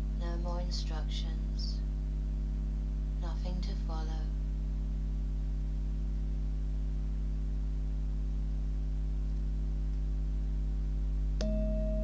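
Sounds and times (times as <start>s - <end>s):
steady low hum: 0.0s - 12.0s
singing bowl ringing: 11.4s - 12.0s.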